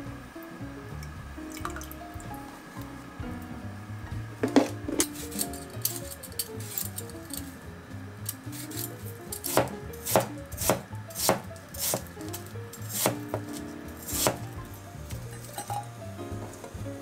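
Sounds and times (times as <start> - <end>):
knife chopping on cutting board: 9.5 - 14.5.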